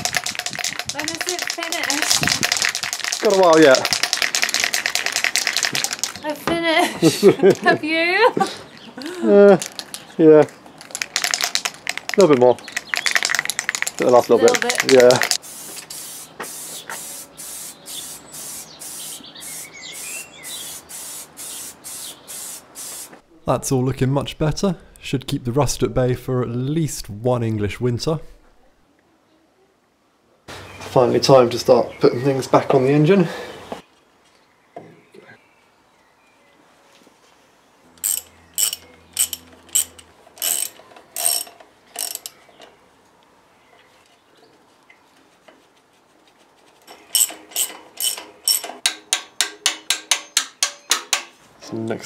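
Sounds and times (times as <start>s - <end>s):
spray paint can hissing: 0.0s - 6.2s, 12.7s - 23.2s
ratchet wrench clicking: 38.0s - 42.4s, 46.9s - 50.9s.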